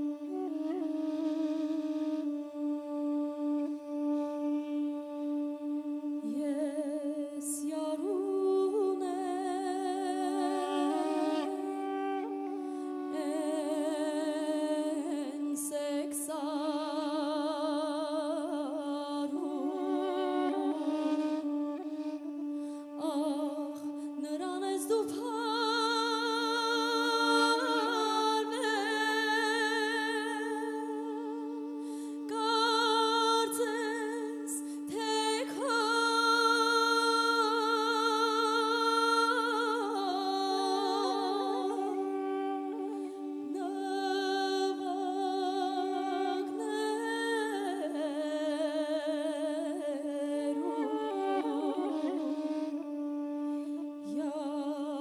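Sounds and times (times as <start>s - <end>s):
woman singing with vibrato: 6.2s - 12.3s, 13.0s - 21.8s, 22.9s - 55.0s.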